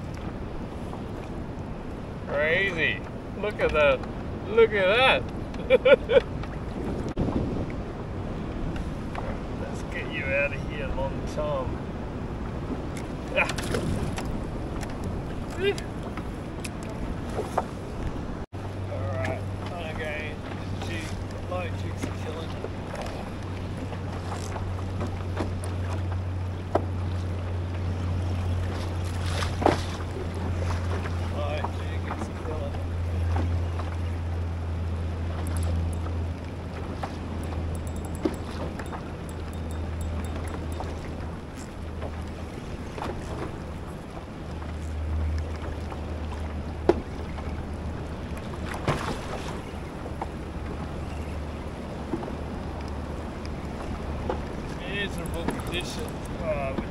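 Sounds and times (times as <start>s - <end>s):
wind buffeting microphone: 0.0s - 56.9s
sea slapping against kayak: 12.6s - 18.4s, 19.2s - 39.4s, 40.4s - 50.8s, 51.7s - 56.9s.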